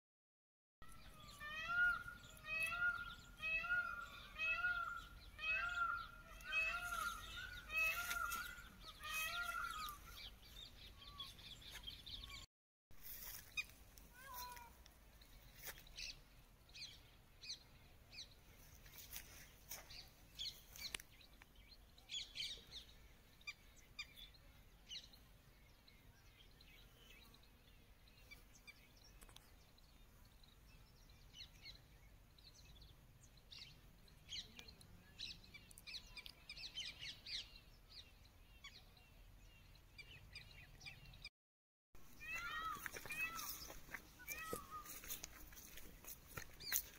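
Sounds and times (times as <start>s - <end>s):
birds chirping faintly: 0.9s - 41.3s, 42.1s - 46.9s.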